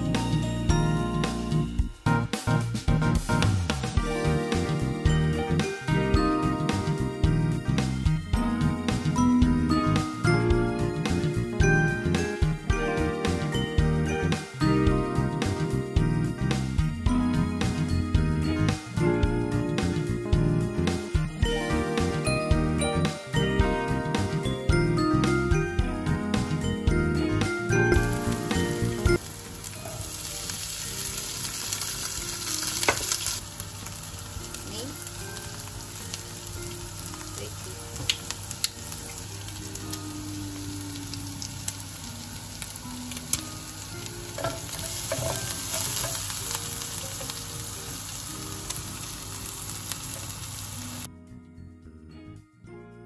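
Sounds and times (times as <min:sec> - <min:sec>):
food sizzling in a pan: 0:27.6 - 0:51.1
spatula scraping a pan: 0:44.4 - 0:46.3.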